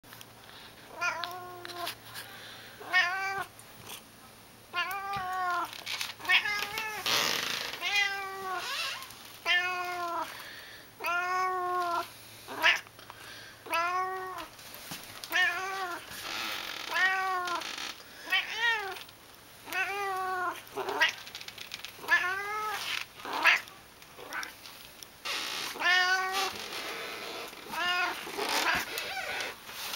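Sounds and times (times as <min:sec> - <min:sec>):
cat meowing: 0:02.8 - 0:03.5, 0:07.8 - 0:10.3, 0:11.0 - 0:12.8, 0:13.7 - 0:14.5, 0:15.3 - 0:16.0, 0:16.8 - 0:17.6, 0:19.7 - 0:21.2, 0:22.0 - 0:24.6, 0:25.7 - 0:26.6, 0:27.6 - 0:29.6.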